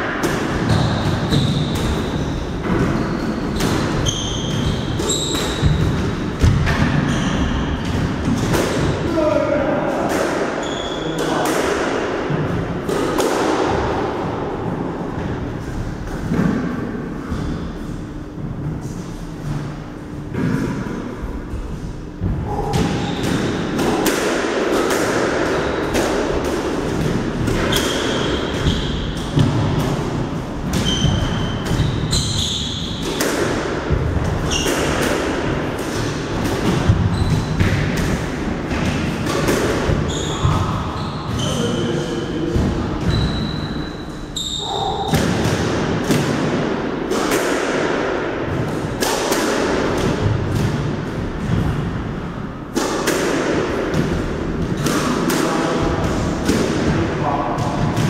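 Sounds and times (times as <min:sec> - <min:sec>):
squash ball hitting rackets and walls: 0:00.0 - 0:58.0
shoe squeaks: 0:00.7 - 0:05.7, 0:07.0 - 0:07.8, 0:10.6 - 0:11.2, 0:27.7 - 0:29.1, 0:30.8 - 0:33.0, 0:34.5 - 0:34.9, 0:37.1 - 0:37.6, 0:40.0 - 0:42.3, 0:43.0 - 0:45.1.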